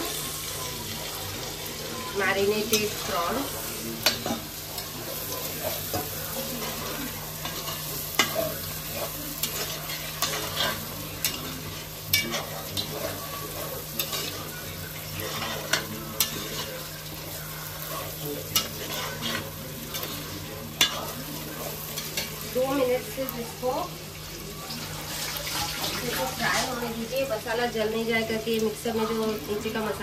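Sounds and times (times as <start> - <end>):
food sizzling in a pot: 0.0 - 30.0
metal spatula scraping a pot: 4.0 - 21.4.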